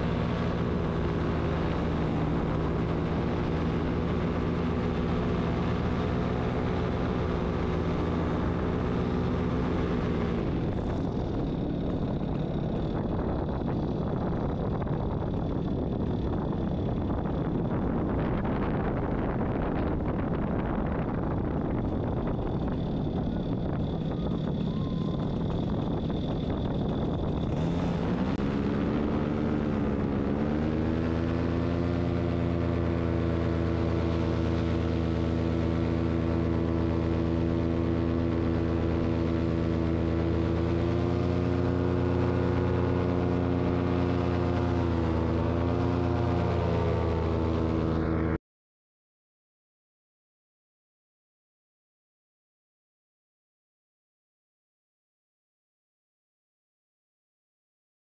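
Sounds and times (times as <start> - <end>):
paramotor engine and propeller: 0.0 - 48.4
wind rush on microphone: 0.0 - 48.4.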